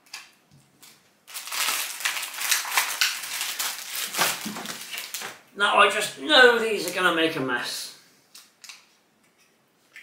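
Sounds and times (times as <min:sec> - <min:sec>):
plastic packaging crinkling: 0:00.0 - 0:05.4.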